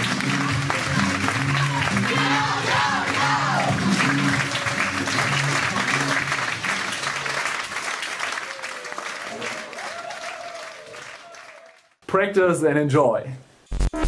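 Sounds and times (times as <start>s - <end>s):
music with repeating bass line: 0.0s - 6.6s
audience applauding: 0.0s - 12.0s.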